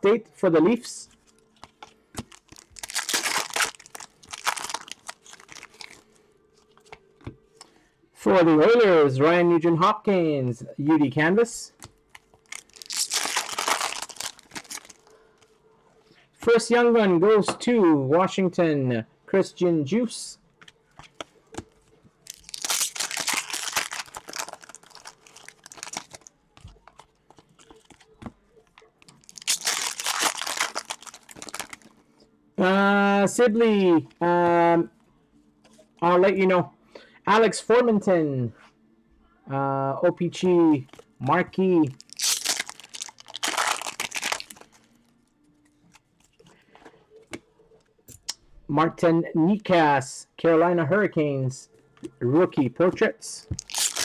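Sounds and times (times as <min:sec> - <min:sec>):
foil wrapper tearing and crinkling: 0:02.2 - 0:06.0, 0:12.4 - 0:15.1, 0:22.3 - 0:26.3, 0:29.1 - 0:31.9, 0:42.0 - 0:44.8, 0:53.6 - 0:54.0.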